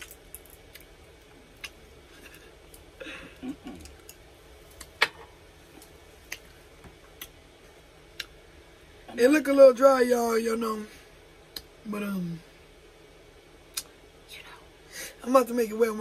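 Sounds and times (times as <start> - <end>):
mouth clicks and smacks chewing: 1.5 - 2.4.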